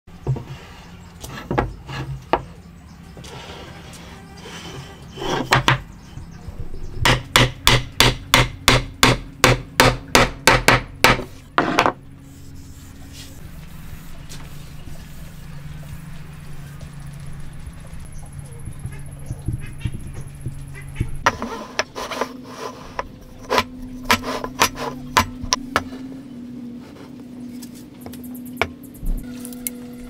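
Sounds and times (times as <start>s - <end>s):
hammer striking wood: 7.0s - 12.0s, 23.6s - 25.9s.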